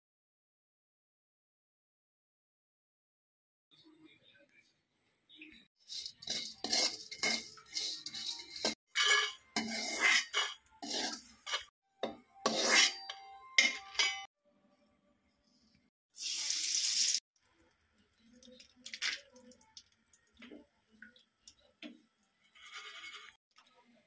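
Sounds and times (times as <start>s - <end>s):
steel cookware clattering: 5.9s - 14.3s.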